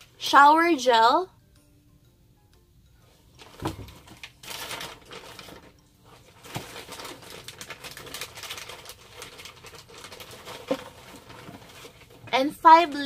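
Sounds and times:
packaging rustling: 3.4s - 12.3s.

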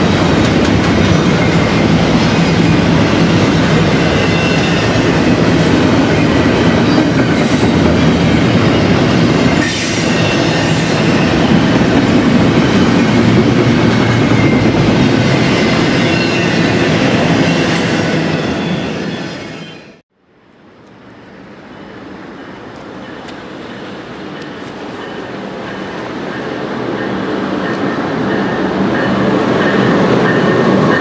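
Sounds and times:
freight train wheels on rails: 0.0s - 20.0s, 20.6s - 31.0s.

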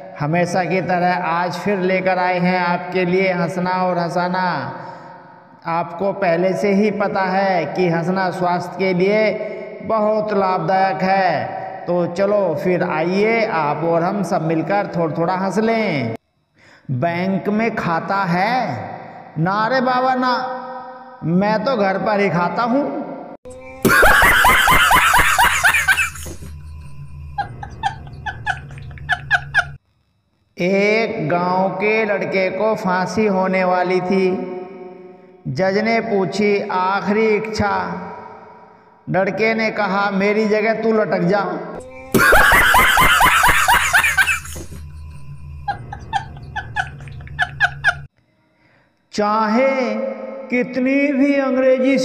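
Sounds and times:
laugh sound effect: 23.6s - 29.8s, 41.8s - 48.1s.

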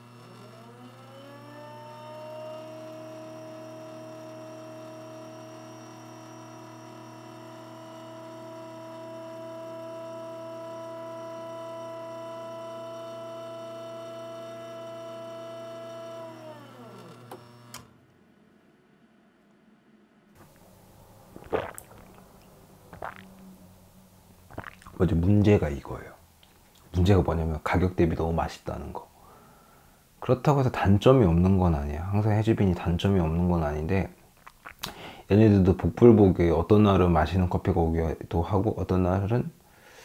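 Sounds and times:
espresso machine pump running: 0.0s - 18.0s, 20.4s - 23.7s.

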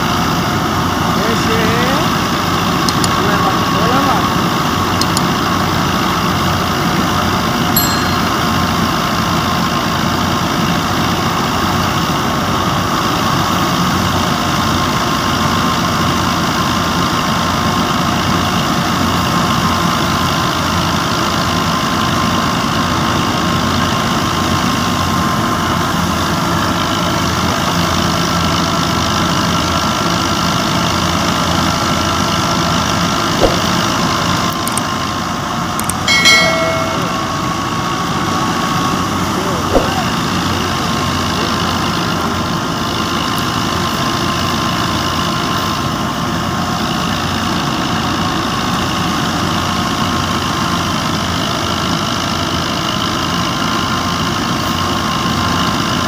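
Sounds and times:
tractor diesel engine running: 0.0s - 7.7s
knock: 33.4s - 33.6s.

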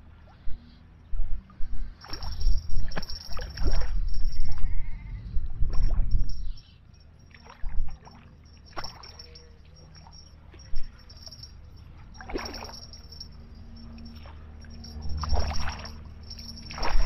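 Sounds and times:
heavy low rumble: 0.0s - 7.0s
fish splashing in water: 12.1s - 13.4s, 15.2s - 17.0s.

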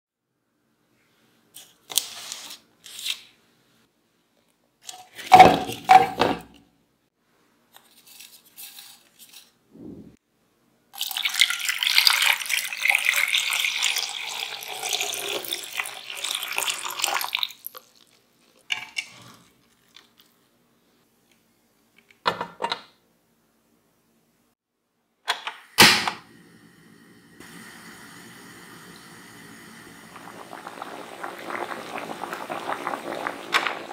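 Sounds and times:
water pouring into a pot: 11.0s - 20.4s, 27.4s - 33.9s.

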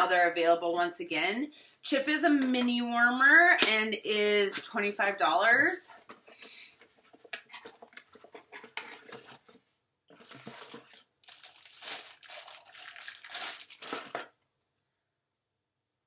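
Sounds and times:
plastic bag crinkling: 7.2s - 14.4s.

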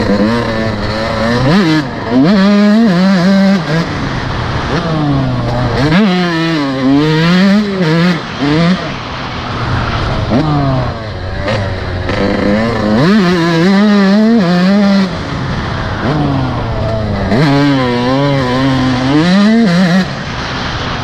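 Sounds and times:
dirt bike engine revving: 0.0s - 21.0s.

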